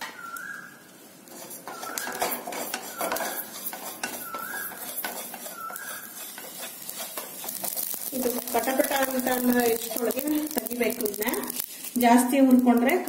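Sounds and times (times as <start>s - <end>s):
spatula squeaking on pan: 1.3s - 11.7s
seeds rattling in a pan: 1.4s - 13.0s.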